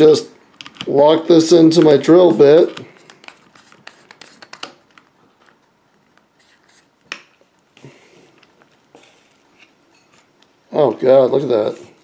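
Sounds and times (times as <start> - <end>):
handling scrapes: 6.3 - 7.0.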